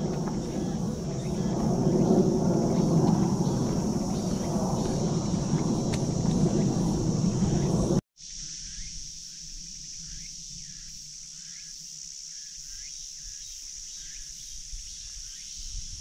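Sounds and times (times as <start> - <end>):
low rumbling noise: 0.0 - 8.0
high-pitched insect drone: 0.0 - 16.0.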